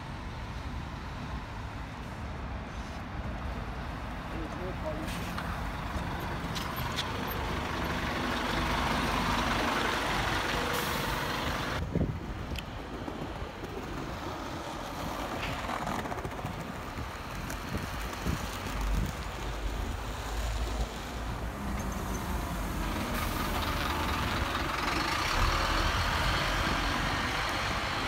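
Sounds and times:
bus engine rumble pulling out: 0.0s - 28.0s
bus passing close by: 5.1s - 15.6s, 16.4s - 28.0s.

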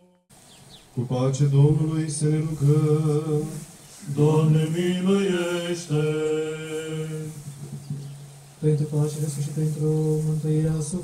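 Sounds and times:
men singing chant a cappella: 1.0s - 7.4s.

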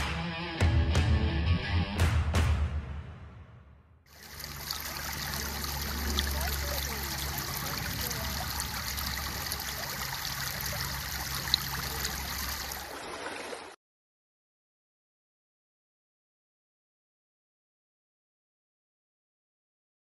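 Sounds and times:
creek water over gravel: 4.1s - 13.8s.

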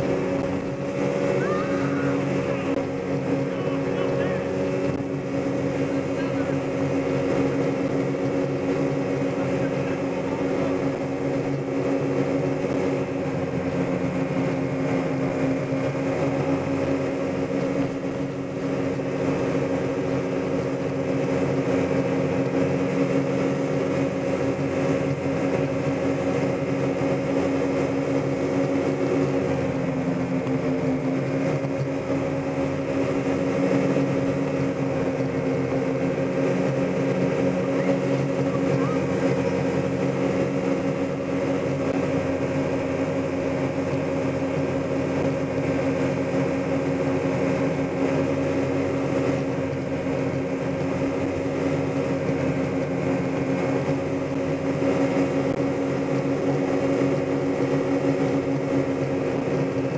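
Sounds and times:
motorboat engine running: 0.0s - 59.9s
water rushing in wake: 0.0s - 59.9s.

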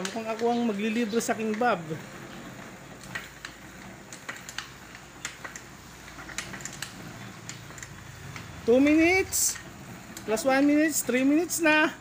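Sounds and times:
elliptical trainer clicking: 0.0s - 12.0s.

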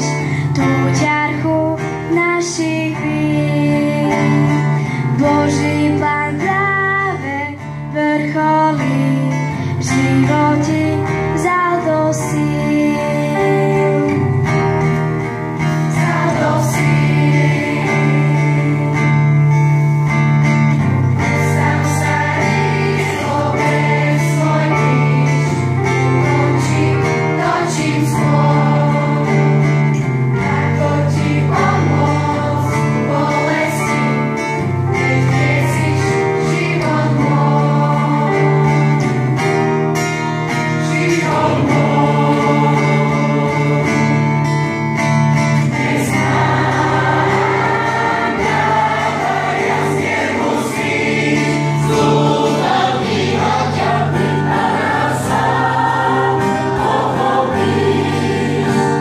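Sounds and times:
mixed choir singing: 15.6s - 59.0s.

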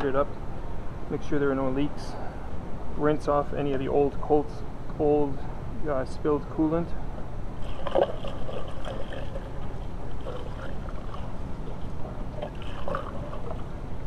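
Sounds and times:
low background rumble: 0.0s - 14.0s
liquid gurgling: 7.6s - 14.0s.

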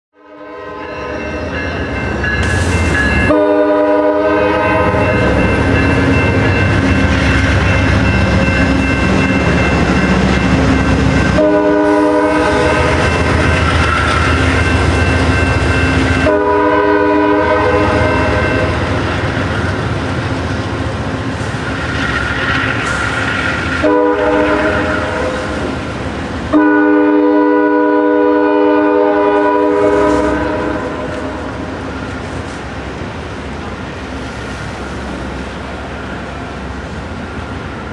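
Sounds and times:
train on rails: 0.1s - 37.9s
train air horn blasts: 0.2s - 1.2s, 3.2s - 5.4s, 11.3s - 14.4s, 16.1s - 18.9s, 23.8s - 25.7s, 26.5s - 31.7s
diesel locomotive rumble: 1.2s - 37.9s.

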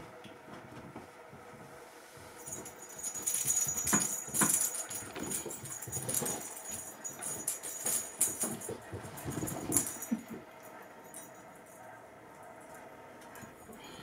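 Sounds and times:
toy ball bell jingling and rattling: 2.4s - 10.4s.

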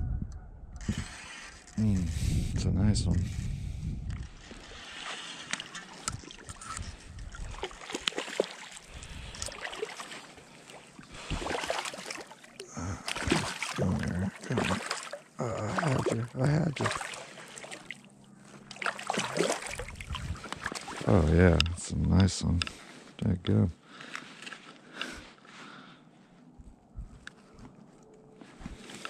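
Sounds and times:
fish splashing at water surface: 7.3s - 21.1s.

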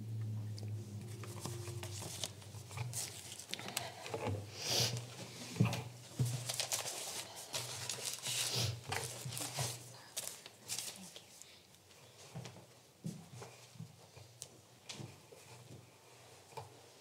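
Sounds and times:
papers and clothing rustling: 1.0s - 12.7s.

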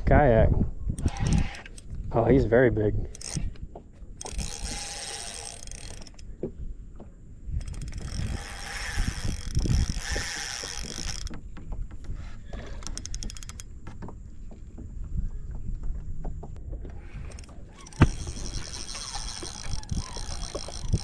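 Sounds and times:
fishing reel drag buzzing: 1.0s - 1.9s, 3.0s - 3.6s, 4.2s - 6.3s, 7.6s - 11.4s, 12.8s - 13.7s, 17.2s - 21.0s
rapid reel clicks: 1.0s - 1.9s, 3.1s - 3.5s, 4.2s - 6.3s, 7.6s - 11.4s, 12.8s - 13.7s, 17.2s - 21.0s.

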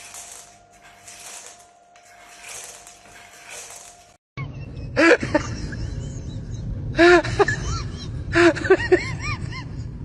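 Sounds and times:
steady low rumble: 4.5s - 10.0s.

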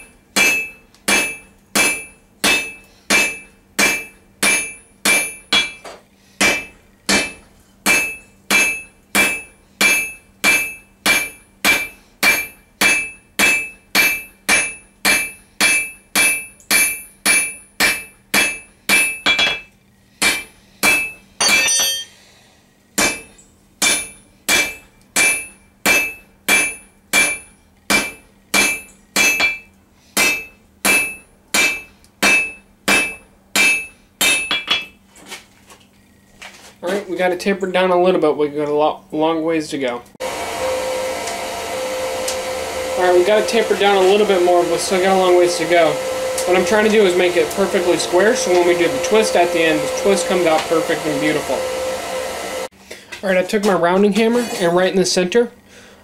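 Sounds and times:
hammer striking hot steel: 0.0s - 22.1s, 23.0s - 35.0s
metal clattering: 0.0s - 22.2s.

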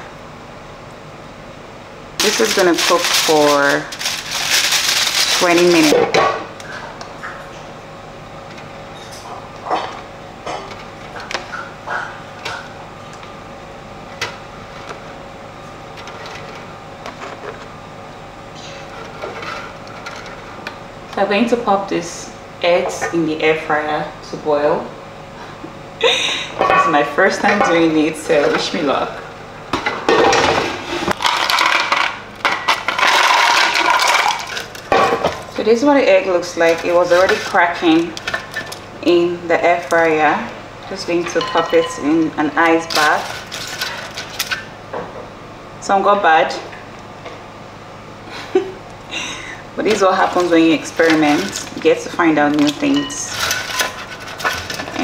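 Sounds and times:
background hum: 0.0s - 55.0s
basket scraping: 2.2s - 6.2s, 32.6s - 38.8s, 42.8s - 44.6s, 49.9s - 55.0s
eggs rattling in air fryer basket: 2.2s - 6.3s, 30.2s - 44.8s, 49.2s - 55.0s
cookware knocking and clattering: 41.2s - 42.2s.

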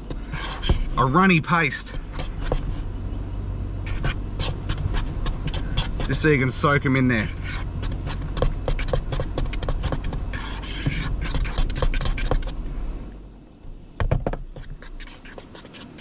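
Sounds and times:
low rumble: 0.0s - 11.8s.

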